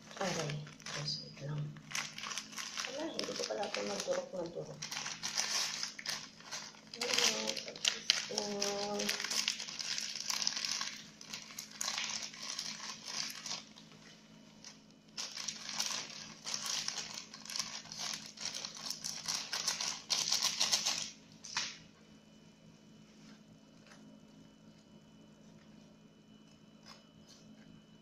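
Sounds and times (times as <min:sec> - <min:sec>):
plastic wrapper crinkling: 0:00.0 - 0:21.9.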